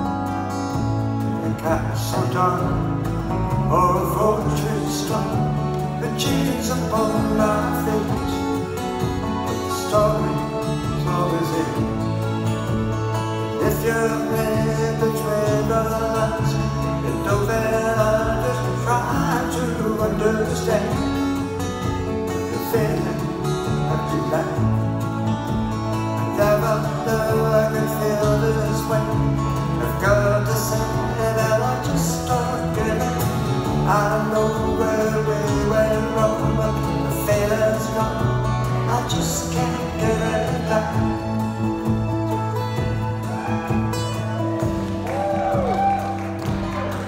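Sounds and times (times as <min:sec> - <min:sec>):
drums: 0:00.0 - 0:47.0
electric bass: 0:00.0 - 0:47.0
keyboard: 0:00.0 - 0:47.0
strummed acoustic guitars: 0:00.0 - 0:47.0.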